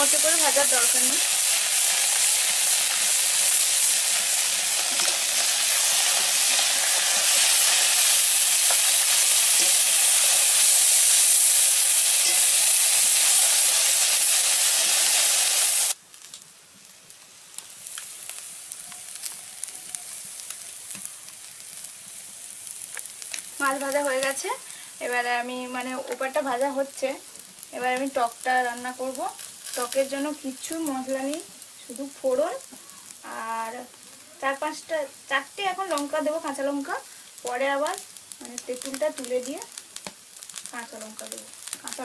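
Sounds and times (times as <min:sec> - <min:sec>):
fish sizzling in hot oil: 0:00.0 - 0:42.0
faint crackle with small ticks: 0:16.1 - 0:22.0, 0:22.6 - 0:23.6, 0:27.3 - 0:30.1, 0:35.8 - 0:42.0.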